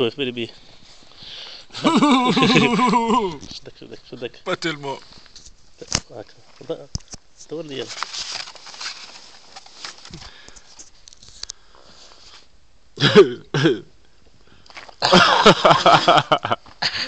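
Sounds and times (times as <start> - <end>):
loud vocal cries: 1.8 - 3.4.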